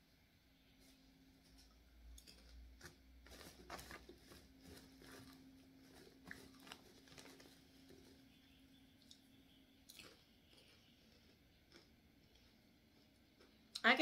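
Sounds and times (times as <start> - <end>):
plastic snack bag crinkling: 2.2 - 9.3, 9.9 - 13.6.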